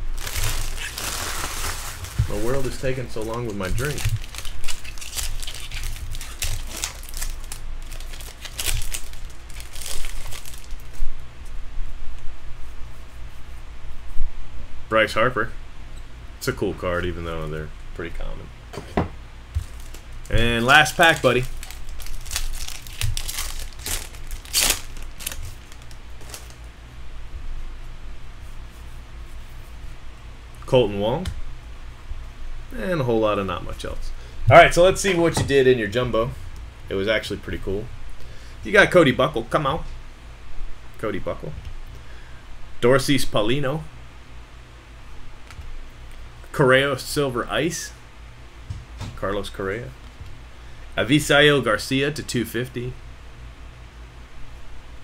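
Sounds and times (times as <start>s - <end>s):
foil wrapper crinkling: 0.0s - 11.0s, 19.6s - 26.7s
steady low hum: 0.0s - 55.0s
cards being handled: 0.1s - 11.0s, 19.6s - 26.6s.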